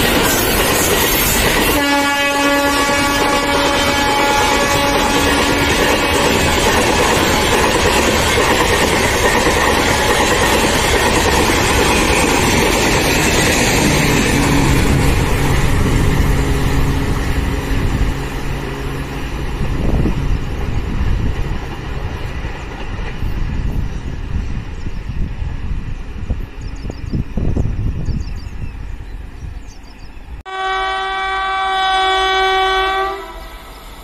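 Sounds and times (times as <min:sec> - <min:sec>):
train wheels on rail: 0:00.0 - 0:30.4, 0:31.7 - 0:34.0.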